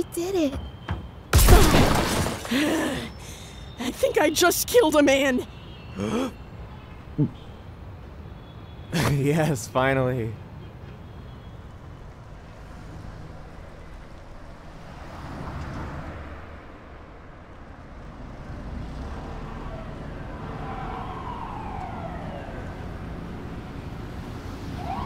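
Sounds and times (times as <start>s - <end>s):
siren wailing: 19.4s - 23.4s, 24.6s - 25.0s.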